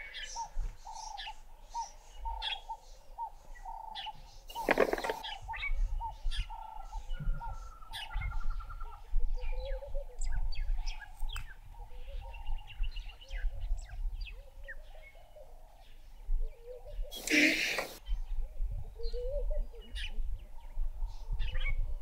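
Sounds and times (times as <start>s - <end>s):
wild birds chirping and calling: 0.0s - 22.0s.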